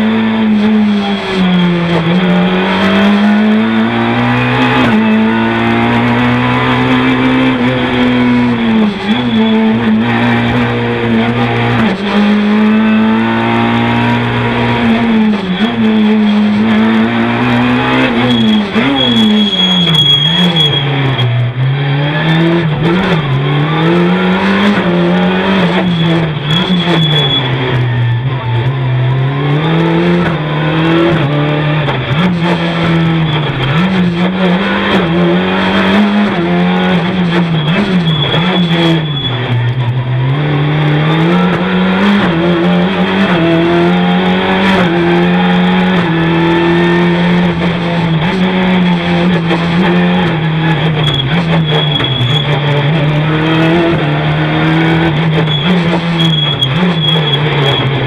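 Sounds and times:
rally car engine at full throttle: 0.0s - 58.0s.

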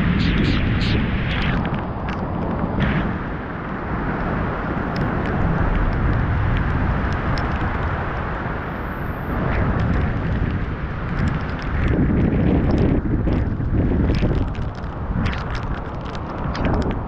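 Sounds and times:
deep rumble: 0.0s - 17.0s
storm wind roaring: 0.0s - 17.0s.

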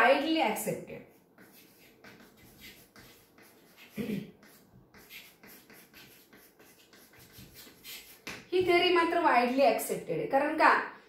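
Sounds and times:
chalk writing on chalkboard: 0.9s - 8.7s.

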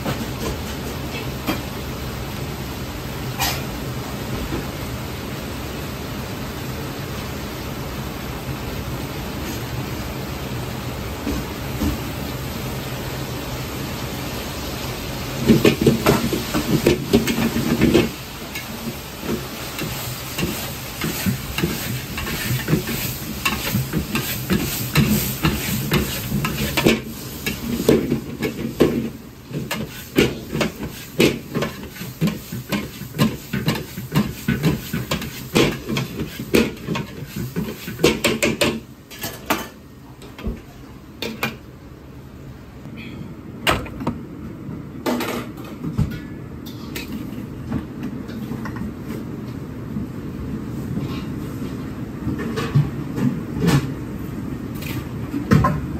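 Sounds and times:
food sizzling: 14.0s - 38.5s
metal ladle scraping wok: 19.3s - 28.8s.

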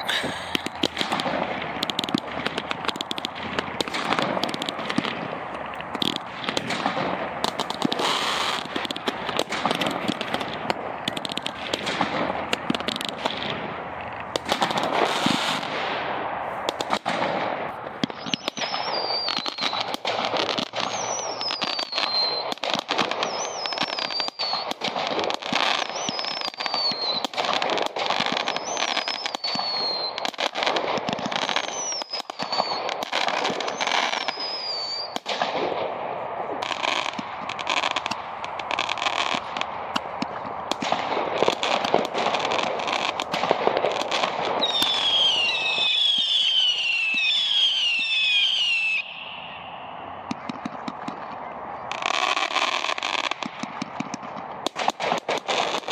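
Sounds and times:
falling firework whistles: 0.0s - 3.2s, 7.5s - 10.4s, 14.5s - 15.8s, 18.0s - 35.6s, 41.4s - 53.5s
firework bangs and crackling: 0.0s - 55.9s.

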